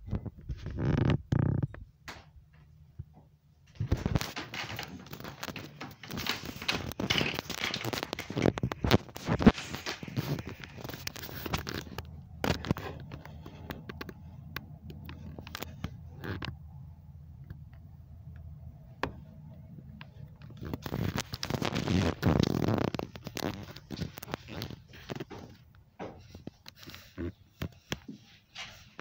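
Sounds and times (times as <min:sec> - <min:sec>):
faint low hum: 0:01.2 - 0:28.0
rustling and scraping: 0:03.7 - 0:16.6, 0:19.0 - 0:29.0
sharp clicks and crackles: 0:03.7 - 0:16.6, 0:19.9 - 0:28.0.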